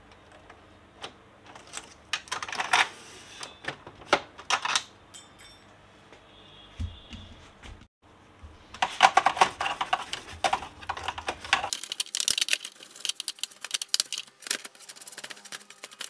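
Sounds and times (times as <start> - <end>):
brush scrubbing plastic: 9.1 - 16.0.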